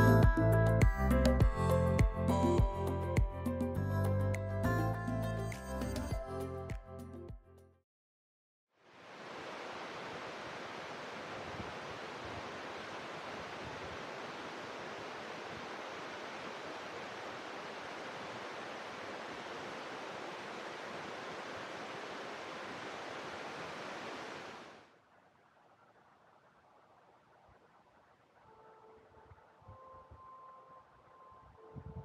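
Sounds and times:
water rushing: 0:08.8 - 0:28.6.

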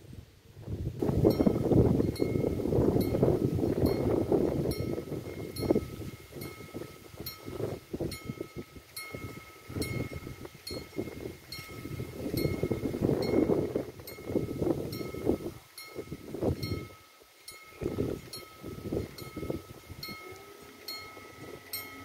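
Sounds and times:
level crossing bell ringing: 0:18.4 - 0:22.0.

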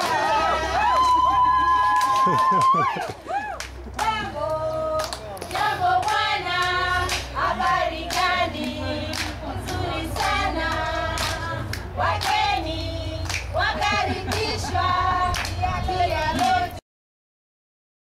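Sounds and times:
women singing together: 0:03.9 - 0:16.8
hand claps: 0:13.2 - 0:13.5, 0:15.4 - 0:15.6.

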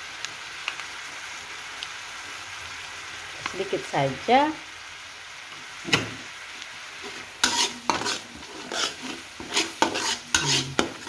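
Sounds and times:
sauce sizzling in a wok: 0:00.0 - 0:11.0
metal spatula scraping a pan: 0:07.0 - 0:11.0.

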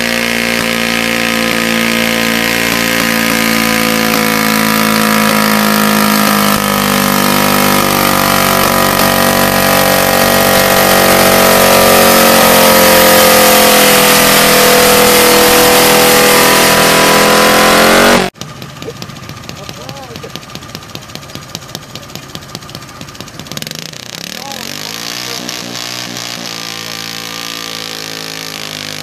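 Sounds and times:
tractor engine straining under load: 0:02.3 - 0:12.4.

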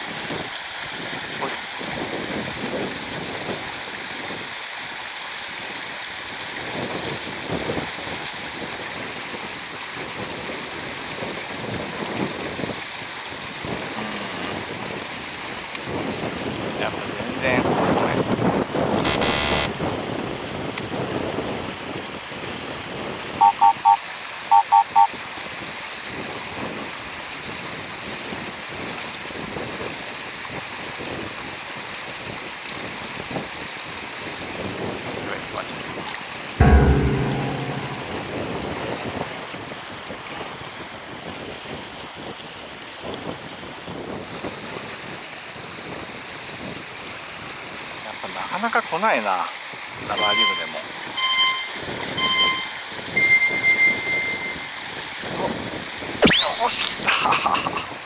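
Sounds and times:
water: 0:00.0 - 0:58.0
wind: 0:00.0 - 0:58.0
short electronic beeps: 0:19.0 - 0:19.7, 0:23.4 - 0:25.1, 0:50.2 - 0:54.7, 0:56.2 - 0:57.4.

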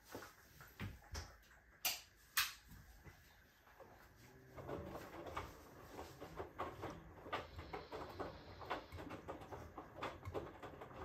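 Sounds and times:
washing machine clicks: 0:04.6 - 0:11.0.

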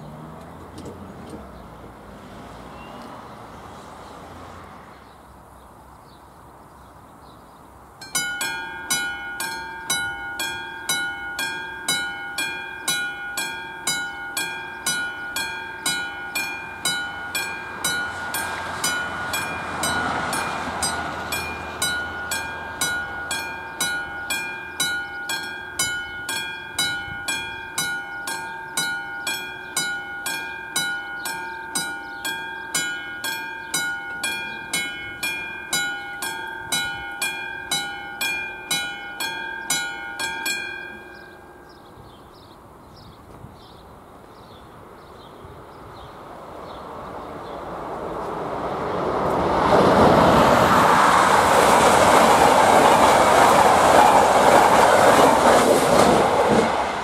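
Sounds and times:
level crossing bell clanging: 0:08.0 - 0:42.2
rushing noise: 0:46.9 - 0:57.0.

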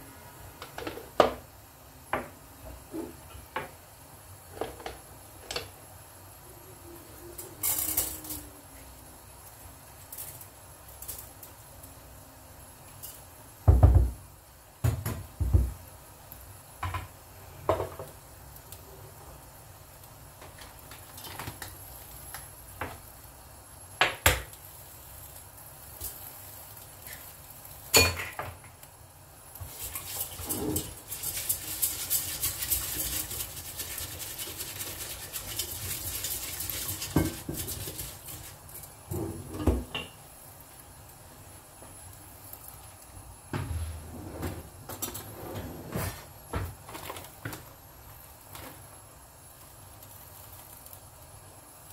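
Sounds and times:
spatula scraping glass bowl: 0:29.8 - 0:38.4
rustling hiss: 0:47.2 - 0:51.9.

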